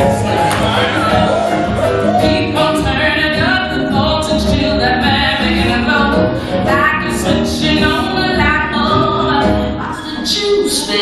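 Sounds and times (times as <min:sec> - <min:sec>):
chorus singing: 0:00.0 - 0:05.5
band accompaniment: 0:00.0 - 0:09.9
woman singing: 0:00.0 - 0:11.0.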